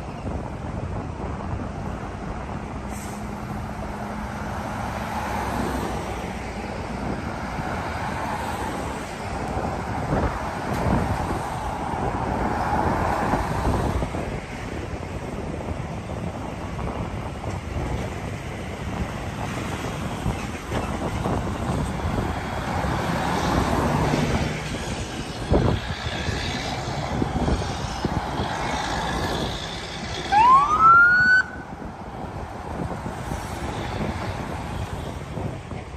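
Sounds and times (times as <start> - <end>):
vehicles driving past: 0.0 - 35.9
siren whoop: 30.3 - 31.6.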